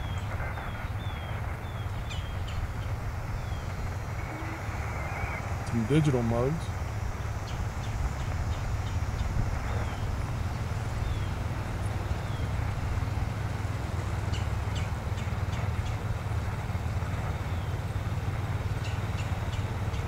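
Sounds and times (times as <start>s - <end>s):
radio static hiss: 0.0s - 14.3s.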